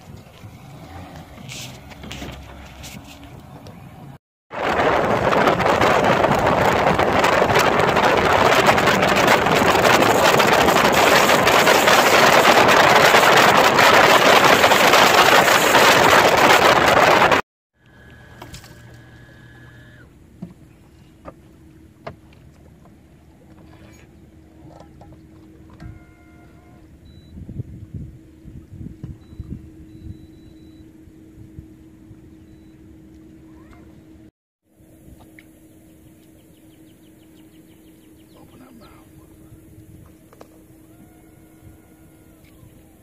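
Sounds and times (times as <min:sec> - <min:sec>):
boat rushing over water: 0:00.0 - 0:43.0
faint steady tone: 0:29.2 - 0:33.8.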